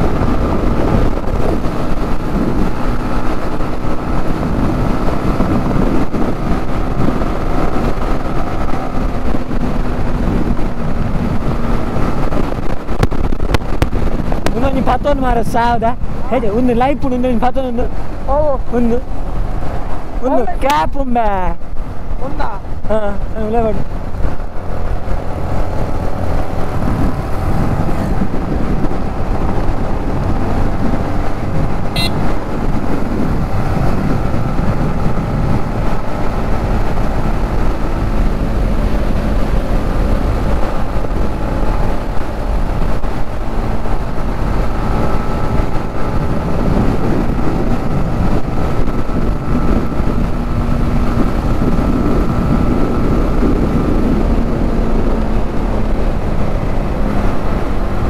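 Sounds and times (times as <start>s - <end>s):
road and wind noise: 0.0s - 58.0s
motorcycle engine running: 21.6s - 58.0s
brief high-pitched sound: 32.0s - 32.2s.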